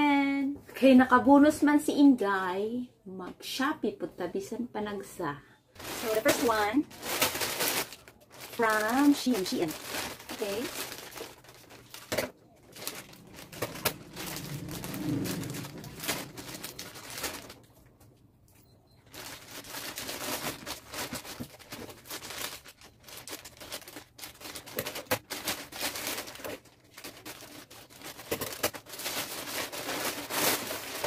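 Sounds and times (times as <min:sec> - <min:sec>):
plastic bag crinkling and tearing: 0:05.8 - 0:17.9, 0:19.1 - 0:31.0.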